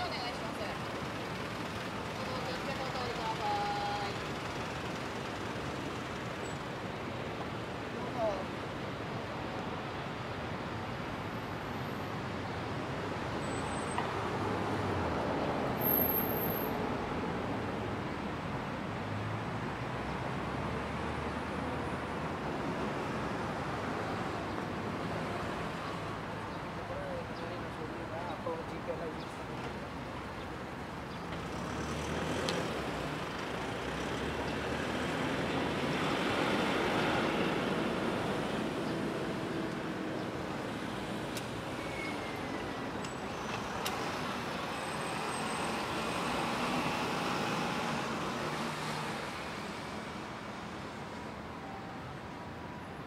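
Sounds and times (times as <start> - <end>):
city traffic: 0.0 - 53.0.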